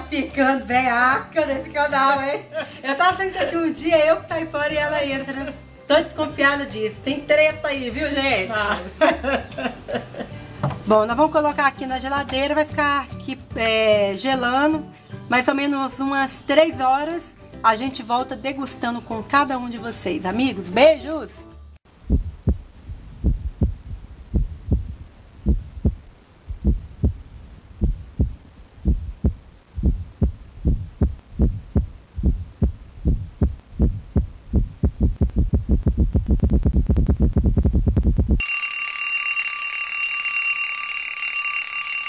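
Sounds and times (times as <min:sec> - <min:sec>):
deep heartbeat-like thumps: 0:21.9 - 0:38.4
alarm clock ringing: 0:38.4 - 0:42.0.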